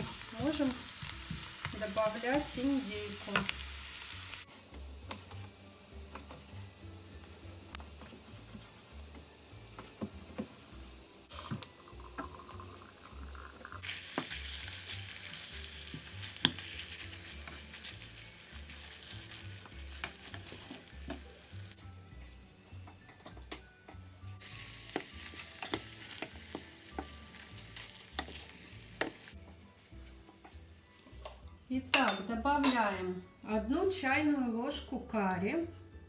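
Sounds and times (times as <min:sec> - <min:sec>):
meat and onions sizzling in a pan: 0:00.0 - 0:31.5
wooden spatula stirring: 0:24.5 - 0:30.7.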